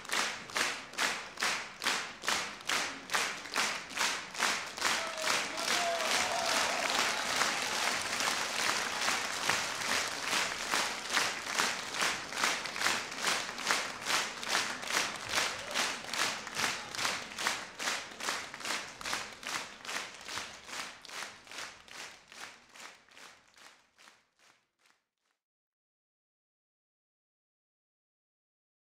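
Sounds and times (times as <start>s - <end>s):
audience clapping in rhythm: 0.0s - 25.1s.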